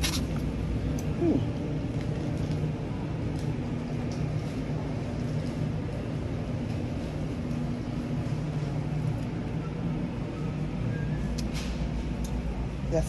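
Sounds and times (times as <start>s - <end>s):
supermarket background rumble and hum: 0.0s - 13.0s.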